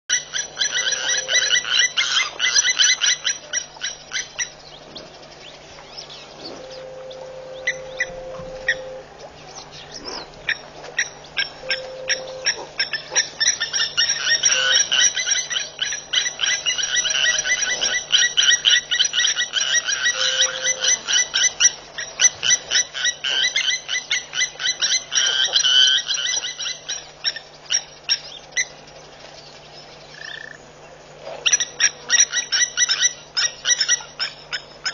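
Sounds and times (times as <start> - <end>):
high-pitched pulsing animal calls: 0.1 - 4.9, 6.0 - 28.8, 30.1 - 34.9
faint low hum: 0.1 - 22.8.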